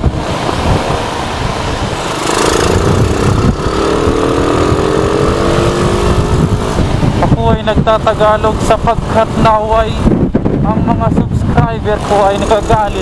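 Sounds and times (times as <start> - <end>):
motorcycle engine: 0.0 - 7.5
wind rumbling on microphone: 0.0 - 13.0.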